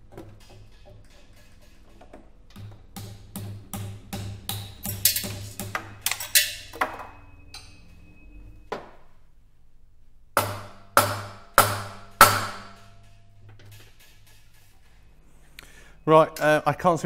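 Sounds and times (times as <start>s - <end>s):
mallet striking steel column: 2.6s - 7.8s, 10.4s - 13.2s.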